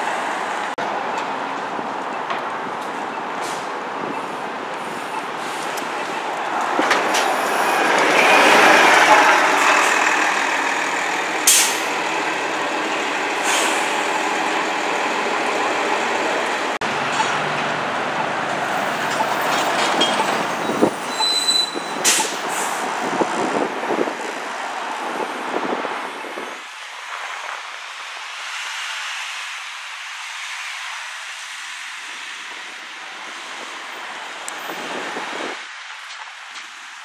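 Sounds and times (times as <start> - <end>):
buses and cars passing: 0.0 - 37.0
high squeal: 18.2 - 22.4.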